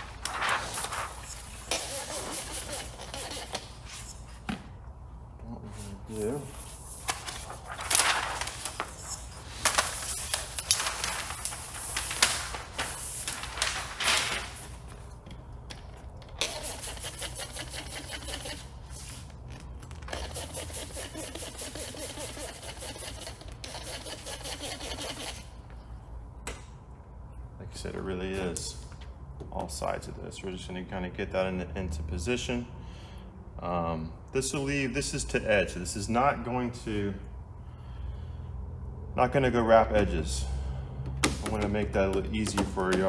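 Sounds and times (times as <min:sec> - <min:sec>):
spray bottle squirting: 0:16.4 - 0:18.6.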